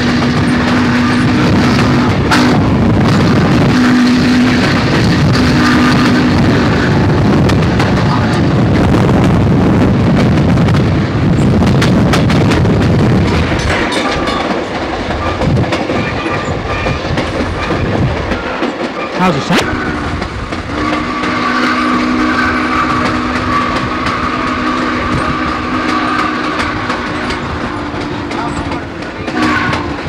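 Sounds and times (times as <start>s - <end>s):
steam locomotive whistle blasts: 0.0s - 2.7s, 5.3s - 6.7s, 18.4s - 27.9s, 29.2s - 30.0s
steam train rumble: 0.0s - 30.0s
wheels clattering on rails: 0.0s - 30.0s.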